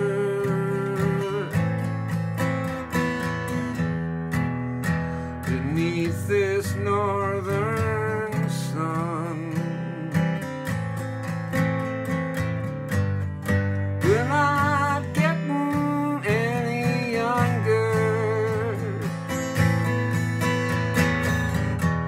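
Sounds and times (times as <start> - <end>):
man singing: 0.0 - 2.0, 4.8 - 10.7, 14.0 - 19.8
acoustic guitar strumming: 0.0 - 22.0.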